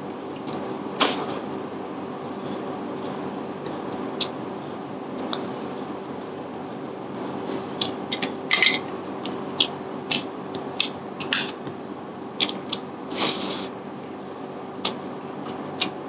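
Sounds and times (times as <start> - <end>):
steady low hum: 0.0 - 16.0
wet eating clicks and smacks: 12.4 - 12.8, 14.8 - 16.0.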